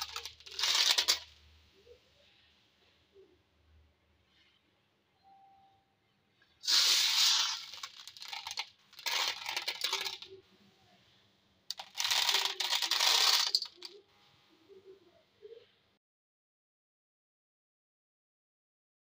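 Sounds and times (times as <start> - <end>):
dry grains rattling in steel bowl: 0.0 - 1.3, 6.6 - 10.3, 11.7 - 14.0.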